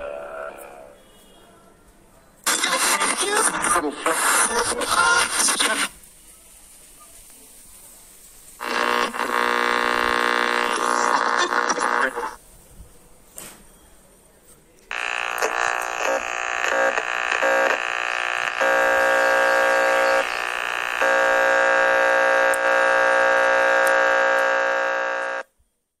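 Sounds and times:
harsh electronic buzzing tone: 8.6 - 12.4, 14.9 - 25.5.

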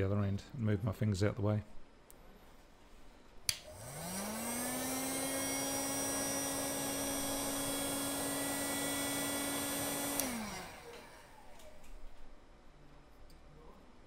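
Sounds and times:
heat gun fan humming: 3.5 - 12.3
heat gun switch click: 10.1 - 11.7.

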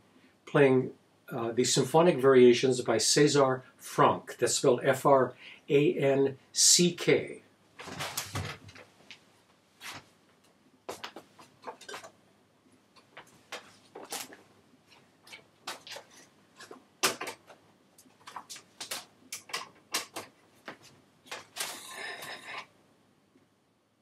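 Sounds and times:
plastic clicks and clacks: 18.2 - 20.4.

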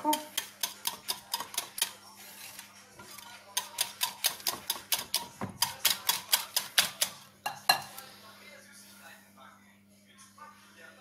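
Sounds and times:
whisk clicking against bowl: 0.0 - 2.0, 3.2 - 7.2.

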